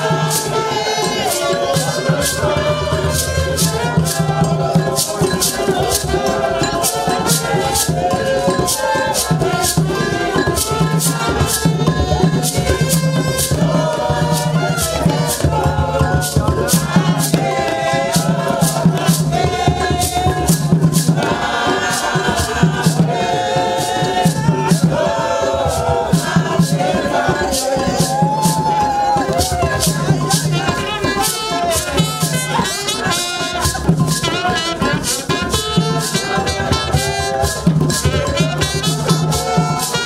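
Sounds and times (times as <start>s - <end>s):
group singing: 0.0s - 40.0s
shaker rattle: 0.0s - 40.0s.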